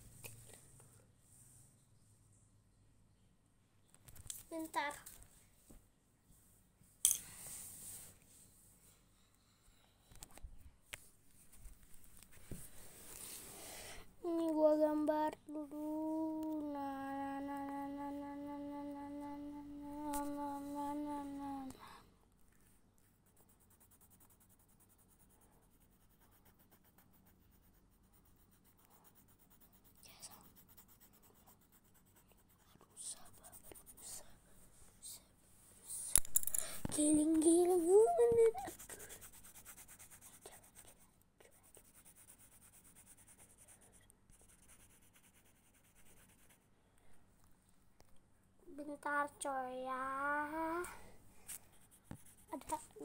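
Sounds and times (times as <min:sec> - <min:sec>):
pencil scratching on paper: 0:23.0 - 0:34.4, 0:38.5 - 0:46.6, 0:51.7 - 0:53.0.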